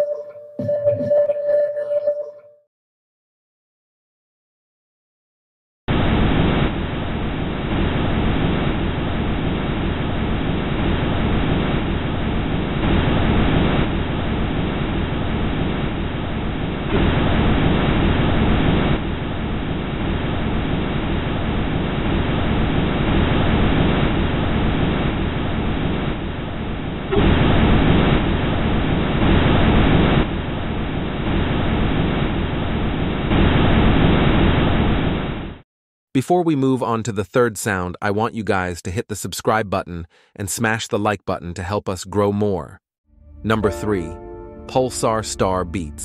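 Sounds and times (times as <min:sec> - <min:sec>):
rushing wind-like noise: 0:05.9 - 0:35.5.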